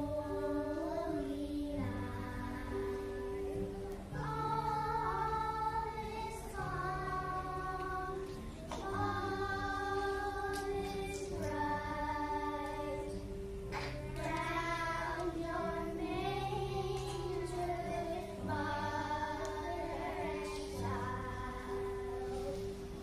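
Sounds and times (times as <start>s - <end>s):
girls singing together: 0.0s - 23.0s.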